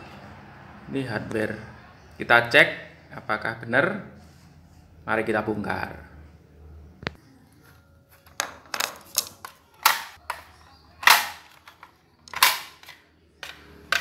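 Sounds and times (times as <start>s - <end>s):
plastic clips snapping: 8.7s - 14.0s.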